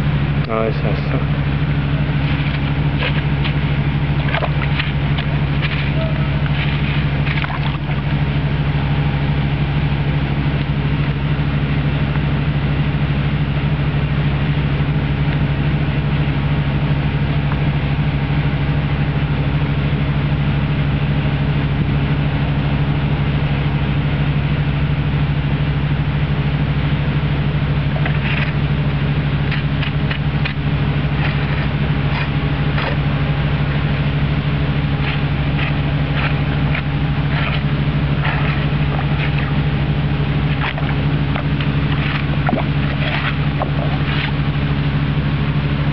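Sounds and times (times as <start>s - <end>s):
low motor hum: 0.0s - 45.9s
stick splashing in shallow water: 1.6s - 8.5s, 27.8s - 45.1s.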